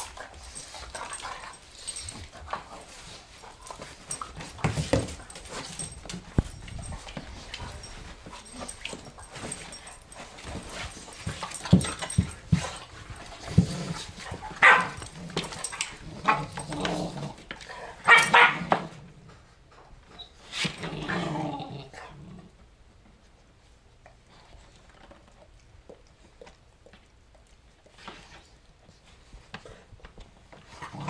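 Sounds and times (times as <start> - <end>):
dogs barking and yipping: 14.4 - 16.6, 18.0 - 18.7.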